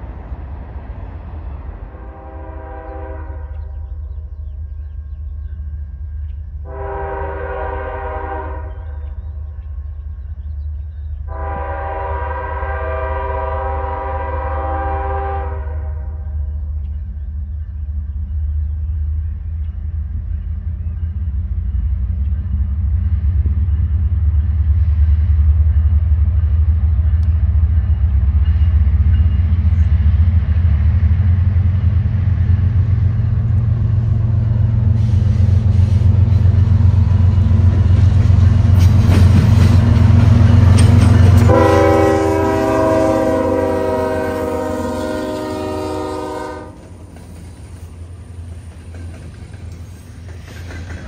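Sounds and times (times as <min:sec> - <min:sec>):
diesel locomotive engine rumble: 0:00.0 - 0:51.0
locomotive air horn blast: 0:01.9 - 0:03.7, 0:06.6 - 0:09.0, 0:11.3 - 0:16.2, 0:41.3 - 0:46.9
train wheels clicking over rails: 0:25.4 - 0:41.8, 0:46.7 - 0:51.0.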